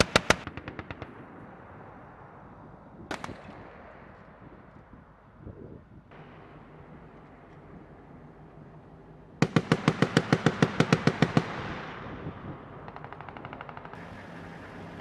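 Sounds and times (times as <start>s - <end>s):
distant machine gun burst: 0.0s - 1.8s, 9.4s - 14.2s.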